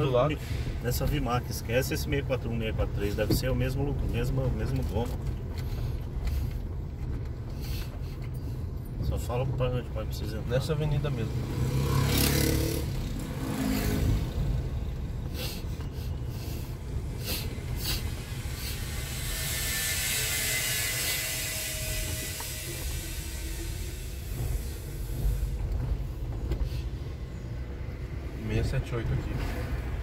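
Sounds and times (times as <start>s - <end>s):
car road rumble: 0.0s - 30.0s
hiss: 0.3s - 6.7s, 7.5s - 8.7s, 10.9s - 28.4s.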